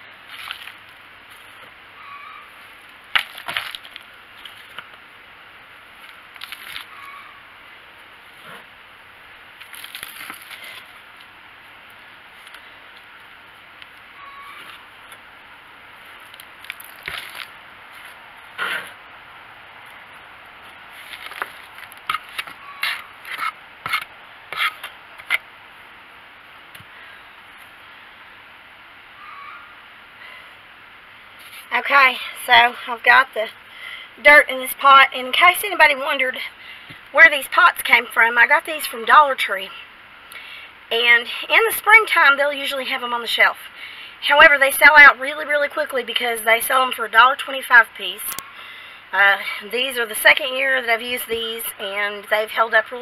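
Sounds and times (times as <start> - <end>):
trowel scraping and dumping soil: 20.9 - 25.4.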